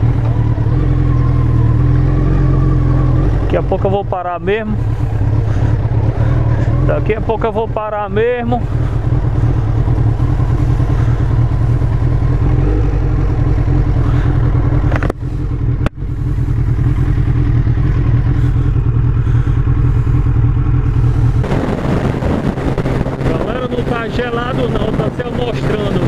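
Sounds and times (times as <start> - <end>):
motorcycle engine running: 0.0 - 26.0
road noise on wet road: 0.0 - 26.0
wind noise: 20.8 - 26.0.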